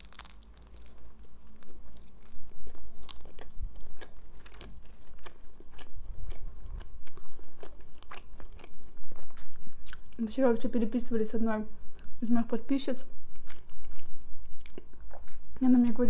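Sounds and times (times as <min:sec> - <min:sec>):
crunchy chewing: 0:00.0 - 0:10.2, 0:13.3 - 0:15.6.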